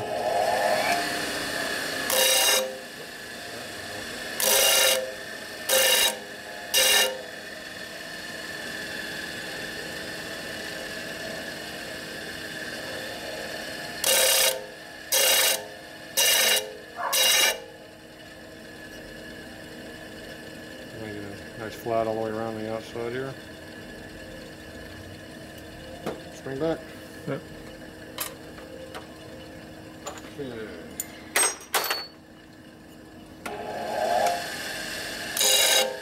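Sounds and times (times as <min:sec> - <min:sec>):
metal tube grinding on sander: 0:00.0 - 0:02.9, 0:04.4 - 0:07.3, 0:16.2 - 0:17.6, 0:33.6 - 0:36.0
disc sander running: 0:00.0 - 0:31.0, 0:32.6 - 0:36.0.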